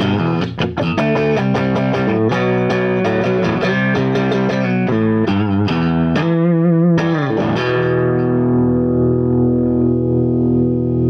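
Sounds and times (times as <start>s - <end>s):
electric guitar blues lick: 0.0s - 11.0s.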